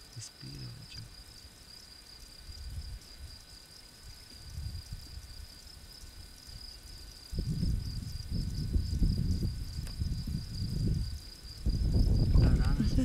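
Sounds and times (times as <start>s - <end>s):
cricket trilling: 0.0s - 13.0s
low rumbles: 7.4s - 13.0s.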